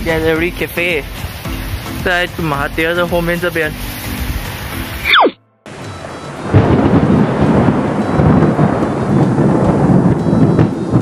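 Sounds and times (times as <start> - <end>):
rain-like hiss: 0.0 - 11.0
swoosh falling in pitch: 5.0 - 5.4
rumble of thunder: 5.7 - 11.0.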